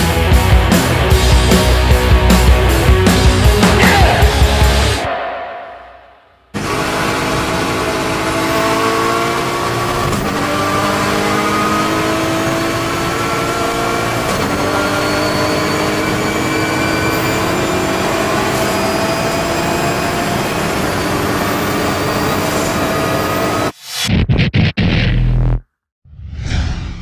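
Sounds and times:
race car engine accelerating hard: 6.6 - 23.7.

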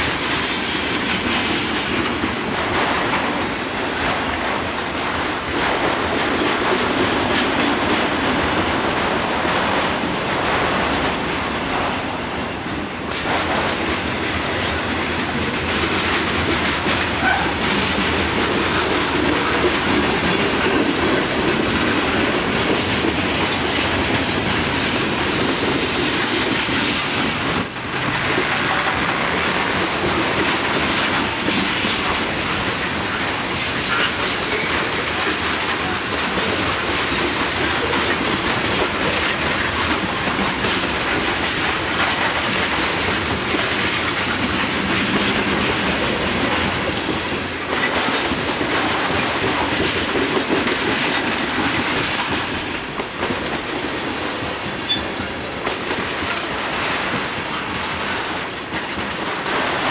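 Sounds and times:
freight train wheels rumbling on rail: 0.0 - 59.9
wheel squeal: 31.0 - 32.6, 54.9 - 56.4, 57.0 - 59.9.

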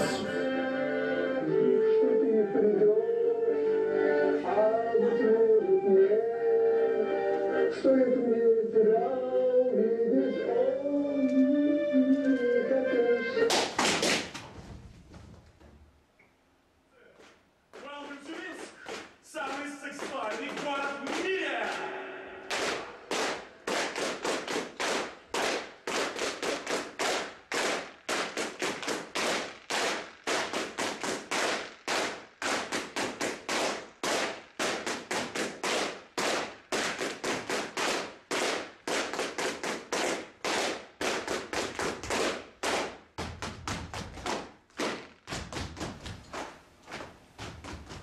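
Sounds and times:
sticks striking wooden stage floor: 17.1 - 48.0.

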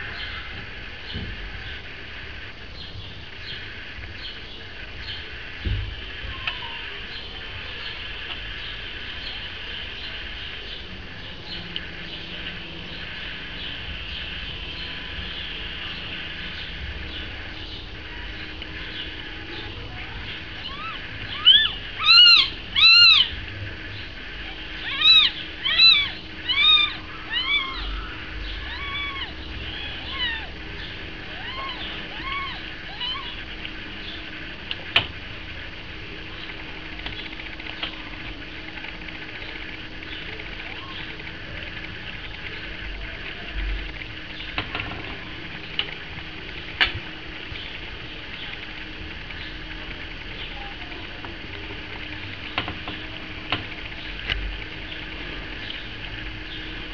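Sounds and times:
kittens mewing: 19.6 - 23.4, 24.4 - 30.6, 31.2 - 33.5.

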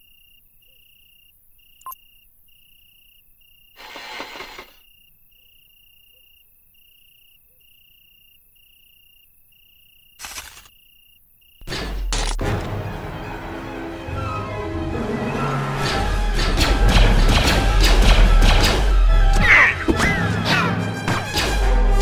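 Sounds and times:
crickets chirping: 0.0 - 12.3.

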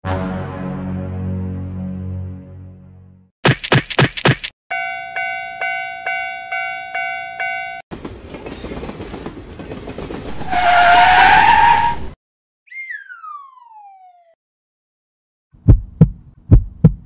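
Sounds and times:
train horn blast: 0.0 - 1.5
level crossing bell dinging: 4.7 - 7.8
train rumbling on track: 7.9 - 12.0.

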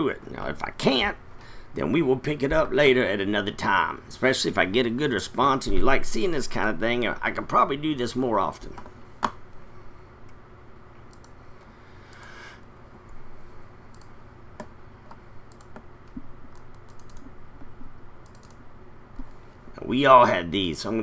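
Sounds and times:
faint low hum: 0.0 - 21.0
keyboard and mouse clicks: 11.1 - 11.4, 13.9 - 18.6.

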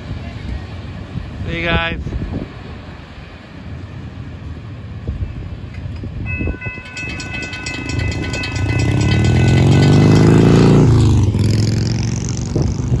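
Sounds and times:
motorcycle accelerating past: 7.8 - 13.0.

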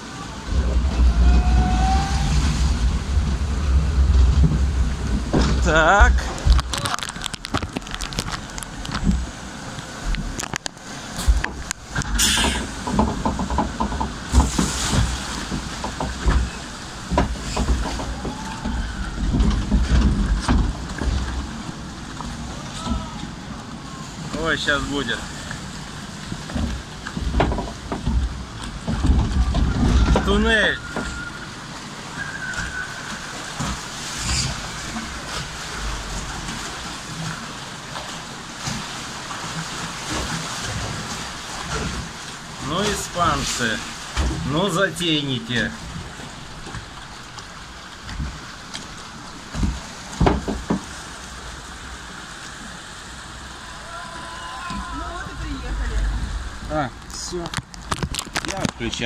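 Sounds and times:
wind buffeting microphone: 0.0 - 10.4
rushing water: 0.0 - 59.0
raft knocks and bumps: 49.5 - 50.9.

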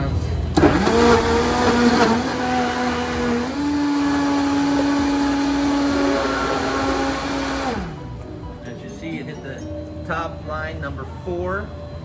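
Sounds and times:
blender motor running: 0.6 - 8.2.

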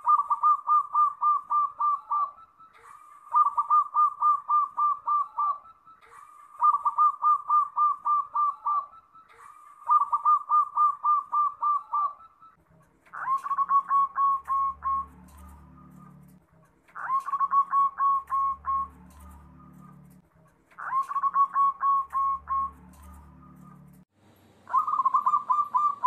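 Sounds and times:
doves cooing: 0.0 - 20.2, 20.8 - 24.0, 24.7 - 26.0
low hum: 17.3 - 20.4.

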